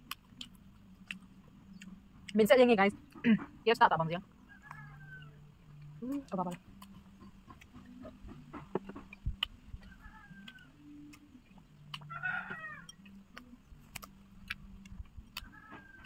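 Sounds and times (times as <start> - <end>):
low wavering hum: 0.0 - 16.0
animal calls: 4.4 - 11.2, 11.8 - 13.4, 15.4 - 16.0.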